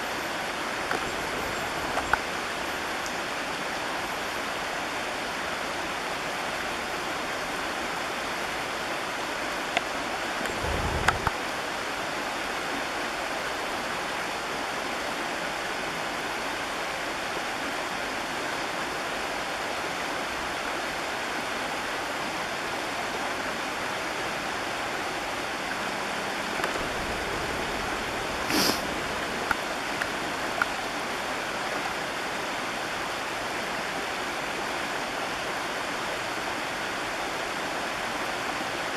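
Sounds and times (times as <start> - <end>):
creek water flowing: 0.0 - 38.9
brief hiss: 28.3 - 29.0.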